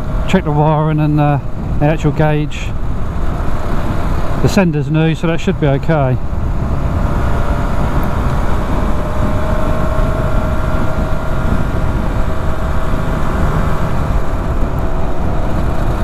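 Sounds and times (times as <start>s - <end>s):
wind rumble on microphone: 0.0s - 16.0s
two-stroke motorcycle engine running: 5.6s - 16.0s.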